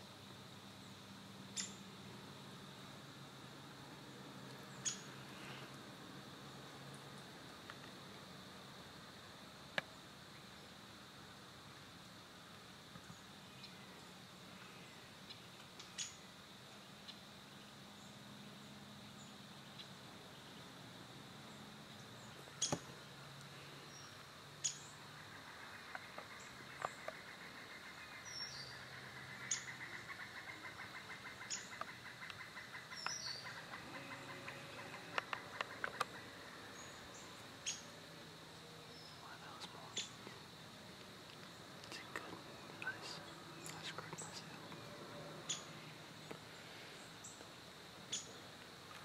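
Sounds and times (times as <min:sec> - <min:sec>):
bird chirps: 0:01.5 - 0:01.8, 0:04.7 - 0:05.6, 0:14.8 - 0:16.3, 0:23.8 - 0:37.9, 0:38.9 - 0:40.4, 0:41.5 - 0:47.5, 0:48.1 - 0:48.4.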